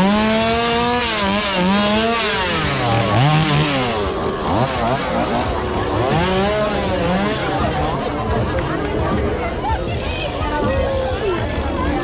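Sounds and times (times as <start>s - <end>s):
chainsaw engine revving: 0.0s - 9.1s.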